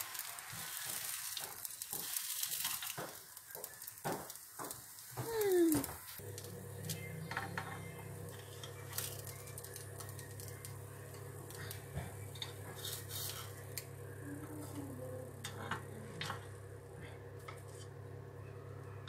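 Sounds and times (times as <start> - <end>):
steady low hum: 5.3 - 19.0.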